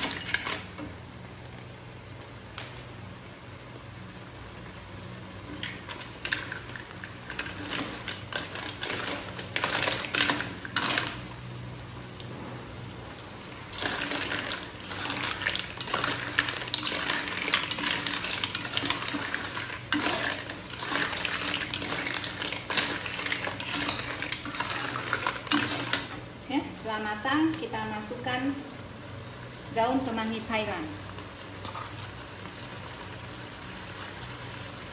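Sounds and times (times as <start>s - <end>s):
metal spatula scraping a wok: 13.7s - 26.2s.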